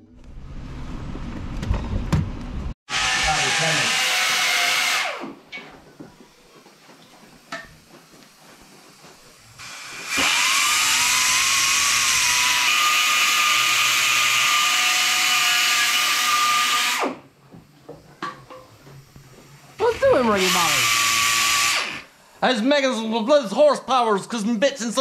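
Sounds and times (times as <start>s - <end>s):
die grinder whining: 2.9s - 5.4s, 9.6s - 17.2s, 19.8s - 22.1s.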